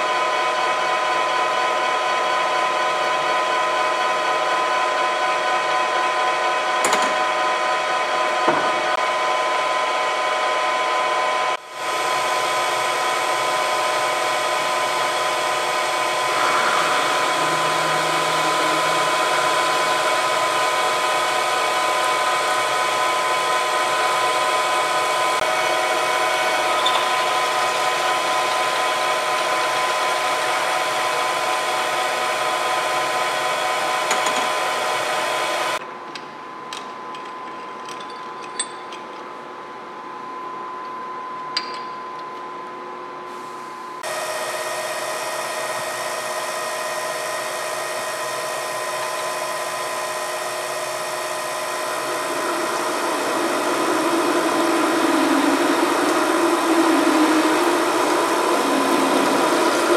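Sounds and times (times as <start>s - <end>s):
lathe gear whine: 0.0s - 35.8s, 43.9s - 59.9s
drill boring into metal: 13.2s - 30.2s.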